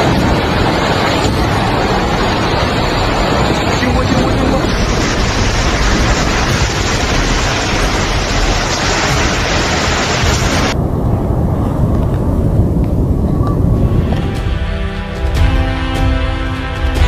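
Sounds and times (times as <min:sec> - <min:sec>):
wind buffeting microphone: 0:00.0 - 0:15.3
low wind rumble: 0:00.0 - 0:17.0
music: 0:13.5 - 0:17.0.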